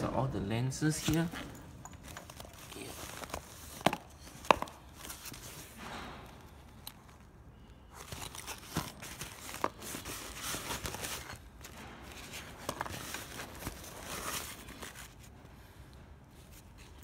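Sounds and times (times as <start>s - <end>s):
nylon bag rustling: 0.9s - 5.8s, 7.9s - 15.3s.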